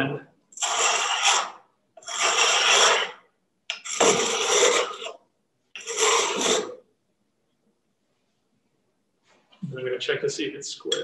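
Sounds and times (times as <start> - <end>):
chisel scraping on oil stone: 0.5 - 5.2, 5.8 - 6.8.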